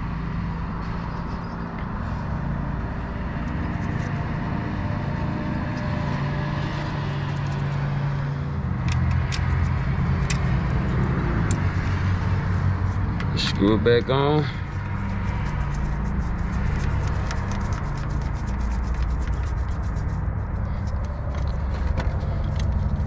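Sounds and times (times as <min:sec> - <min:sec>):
vehicle engine humming: 0:00.0 - 0:23.0.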